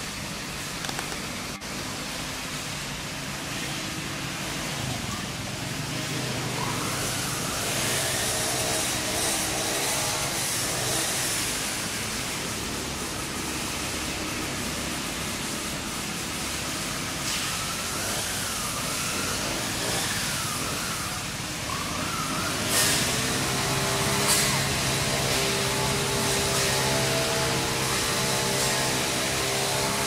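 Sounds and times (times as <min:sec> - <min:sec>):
engine hum: 0:00.0 - 0:30.0
vehicle engine and road noise hiss: 0:00.0 - 0:30.0
sharp clicks: 0:00.8 - 0:01.3.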